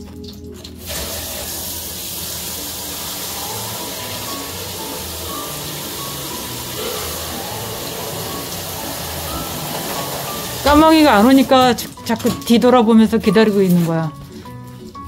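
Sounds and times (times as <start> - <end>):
simple background melody: 0.0 - 15.0
steady hiss: 0.8 - 11.2.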